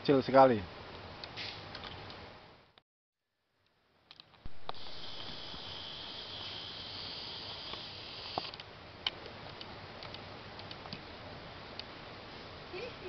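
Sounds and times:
insect high-pitched trill: 4.5 - 8.5.

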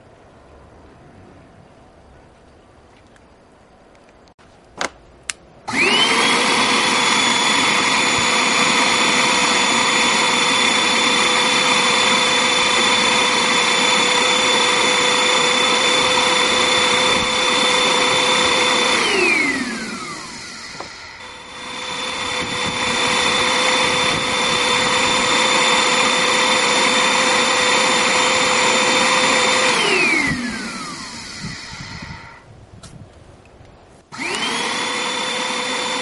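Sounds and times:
electric motor whining: 5.7 - 32.5, 34.1 - 36.0.

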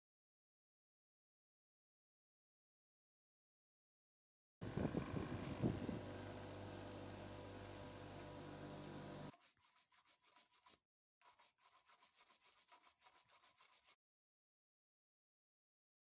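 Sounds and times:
electric grinder motor humming: 4.6 - 9.3
toothbrush scrubbing metal: 9.3 - 14.0.

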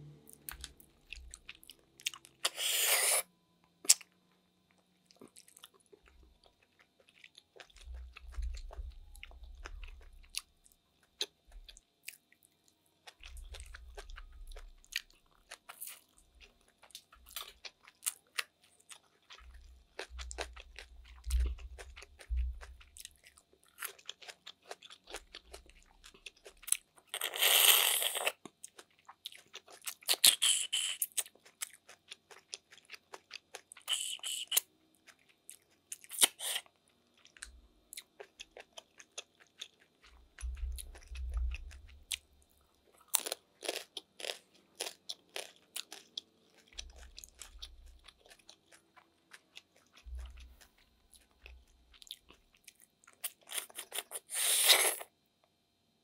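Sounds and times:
wet chewing: 13.0 - 42.2, 42.9 - 55.0.

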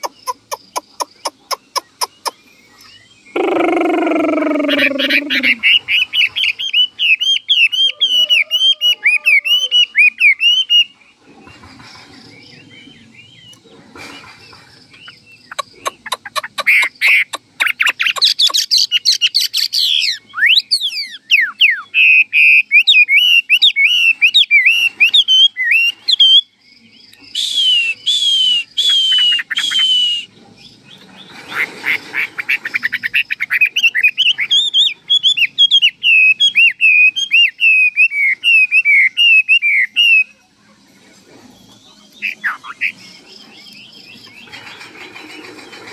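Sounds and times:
bird singing whistled notes: 0.0 - 11.0, 16.8 - 31.3, 33.2 - 40.4.

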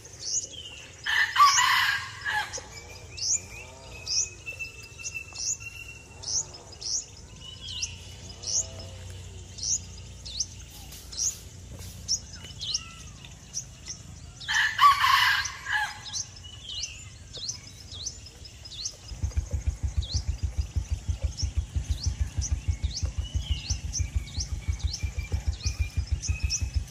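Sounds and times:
small birds chirping: 0.0 - 26.9
rooster crowing: 1.1 - 2.7, 14.4 - 16.2
low rapid throbbing: 18.6 - 26.9.

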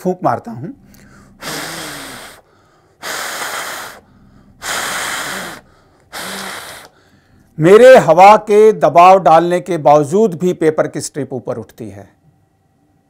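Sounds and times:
man blowing over paper strip: 0.9 - 7.5.

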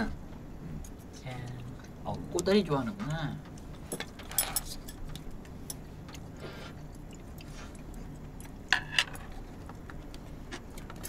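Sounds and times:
chewing close to microphone: 5.0 - 11.0.

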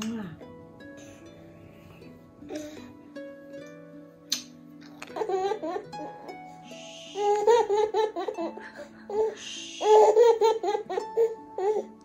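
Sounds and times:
soft background music: 0.0 - 12.0
baby giggling: 5.1 - 6.3, 7.1 - 11.9.

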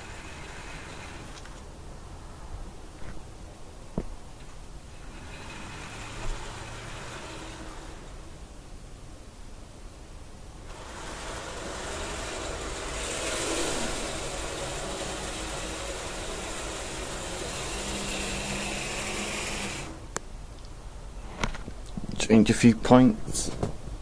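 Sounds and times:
model train motor whirring: 0.0 - 1.9, 4.4 - 8.7, 10.6 - 20.2.

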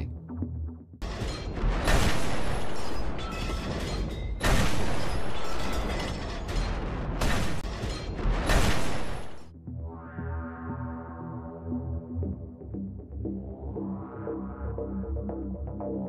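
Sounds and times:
background music: 0.0 - 2.1, 7.7 - 16.0
artillery shots with rumbling tail: 1.4 - 9.5.

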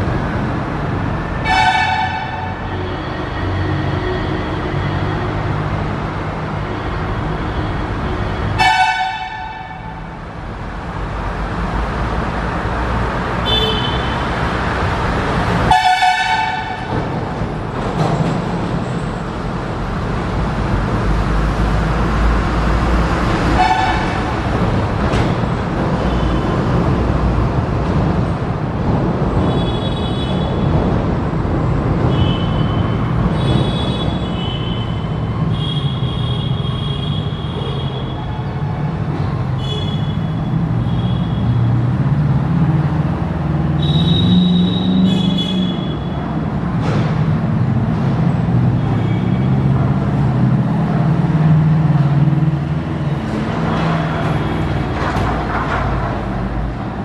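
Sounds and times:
train horn blasts: 1.4 - 2.6, 8.6 - 10.0, 15.7 - 16.9
train rumbling: 14.4 - 35.6, 44.4 - 49.0, 49.7 - 57.0.

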